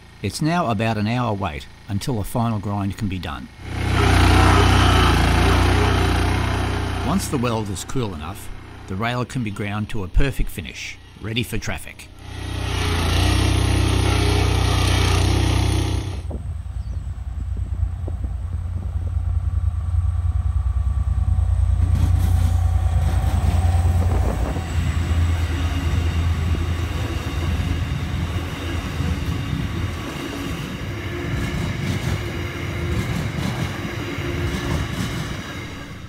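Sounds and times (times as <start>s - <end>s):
locomotive engines rumbling: 0.0s - 36.0s
high whining wheel tones: 3.5s - 10.2s, 12.1s - 36.0s
train wagons clattering: 21.8s - 36.0s.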